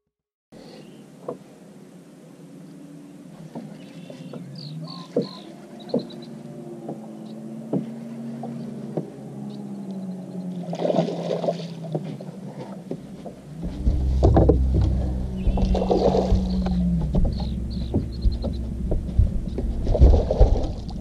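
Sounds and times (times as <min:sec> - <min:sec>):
steady low hum: 0:01.6 - 0:21.0
light knocks: 0:12.9 - 0:21.0.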